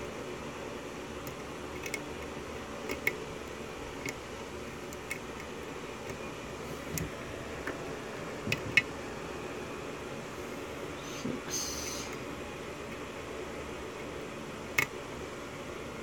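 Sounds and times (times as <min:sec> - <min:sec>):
steady low hum: 0:00.0 - 0:16.0
lock pick clicking against pins: 0:01.2 - 0:04.2.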